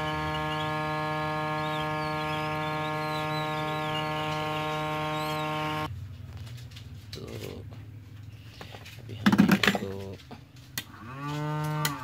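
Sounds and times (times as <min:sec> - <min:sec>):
hot air gun humming: 0:00.0 - 0:05.9.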